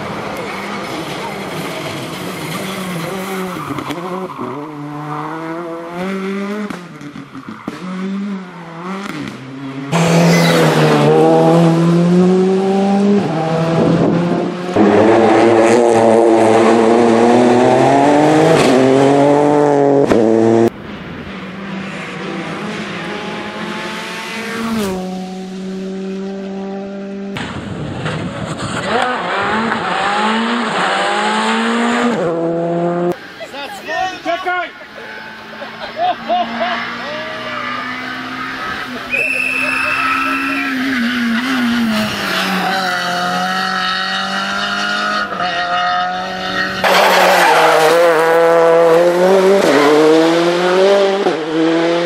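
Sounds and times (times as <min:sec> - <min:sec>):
rally car engines revving: 0:00.0 - 0:33.6, 0:34.2 - 0:52.0.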